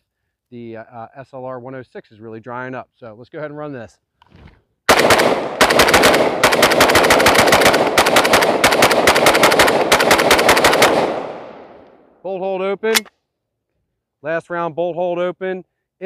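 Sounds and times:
rifle shots in rapid string: 0:04.9 - 0:11.8
gunshot echo: 0:04.9 - 0:12.0.

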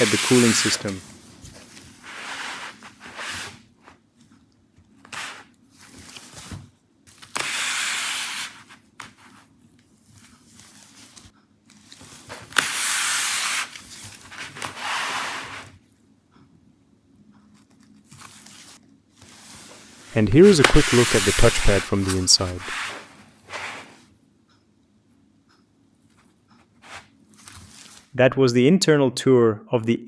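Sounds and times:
gloved hands rubbing laptop: 0:00.0 - 0:01.0, 0:19.3 - 0:24.0.

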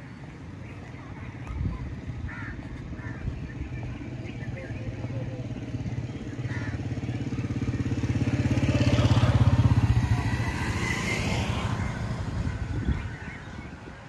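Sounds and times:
motorcycle engine passing by: 0:03.0 - 0:13.8.

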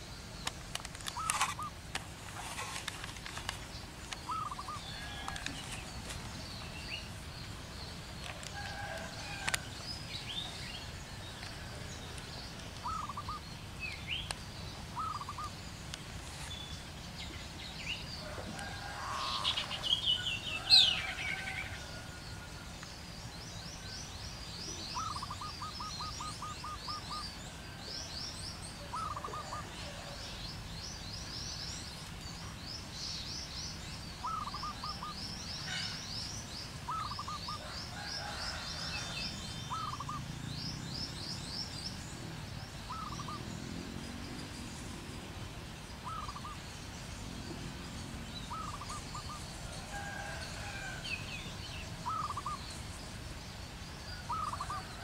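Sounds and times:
low background noise: 0:00.0 - 0:55.0
short lower bird calls: 0:04.2 - 0:05.2, 0:46.0 - 0:46.6
high bird twittering: 0:04.2 - 0:05.8, 0:12.8 - 0:14.4, 0:15.0 - 0:15.6, 0:42.8 - 0:43.5.

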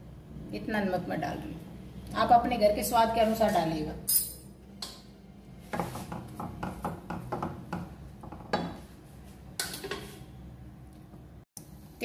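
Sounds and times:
spoon clinking and scraping pot: 0:09.6 - 0:10.3.

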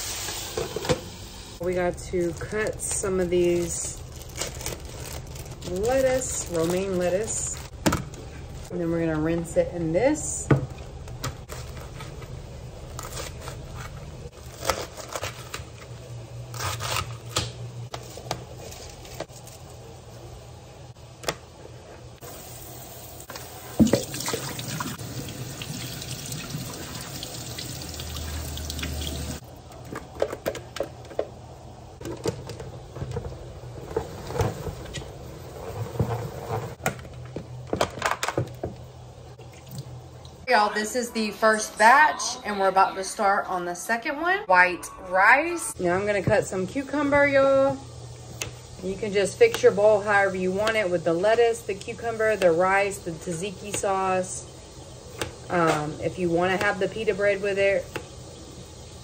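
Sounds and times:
kitchen faucet running: 0:22.2 - 0:29.4.

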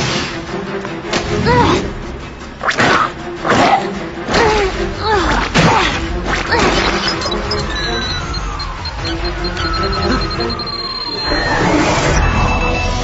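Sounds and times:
background music: 0:00.0 - 0:13.0
swooping pitched effects: 0:06.8 - 0:12.2.

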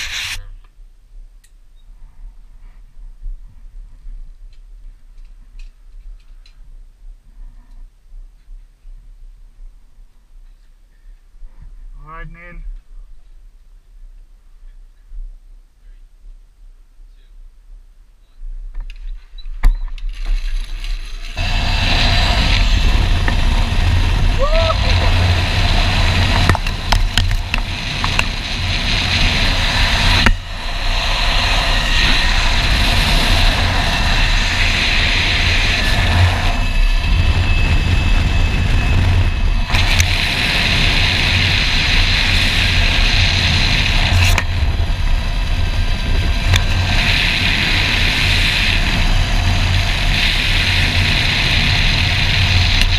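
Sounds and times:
zip-line trolley hissing on cable: 0:00.0 - 0:00.4, 0:20.2 - 0:52.9
wind buffeting microphone: 0:19.5 - 0:52.9.

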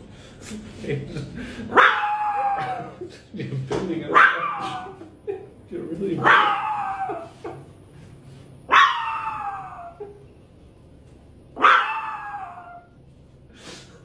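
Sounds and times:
small dog howling barks: 0:01.7 - 0:02.8, 0:04.1 - 0:04.9, 0:06.2 - 0:07.3, 0:08.7 - 0:10.0, 0:11.6 - 0:12.9.

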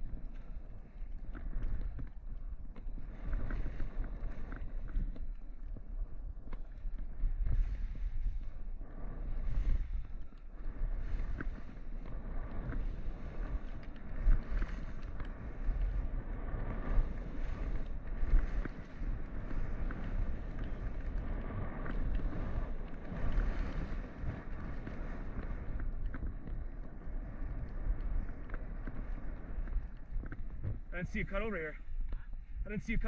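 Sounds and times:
wind buffeting microphone: 0:00.0 - 0:33.0
skis hissing through snow: 0:07.2 - 0:31.8.

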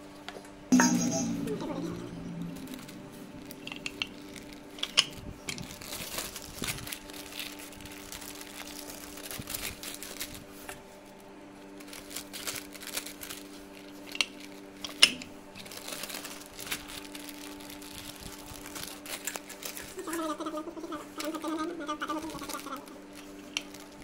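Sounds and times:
faint steady hum: 0:00.0 - 0:24.0
plastic sheets crinkling: 0:05.6 - 0:24.0.

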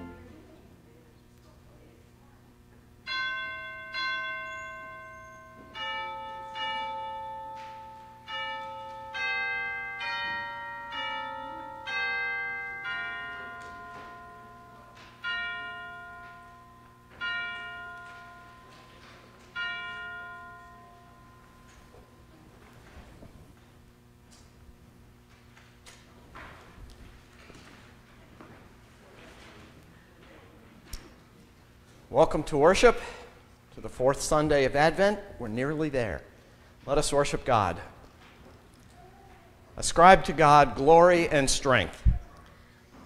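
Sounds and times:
church bell chimes: 0:00.0 - 0:00.4, 0:03.0 - 0:23.0.

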